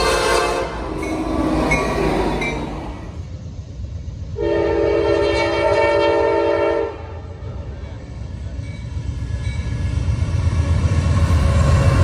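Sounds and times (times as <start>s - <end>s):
locomotive air horn blast: 0.0s - 1.0s, 4.4s - 7.2s
train rumble: 0.0s - 12.0s.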